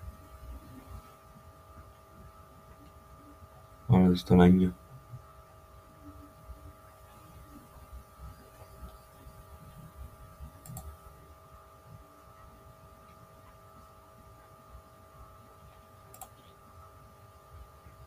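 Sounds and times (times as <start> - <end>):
electrical hum: 0.0 - 18.0
mouse click: 10.6 - 11.0, 16.1 - 16.5.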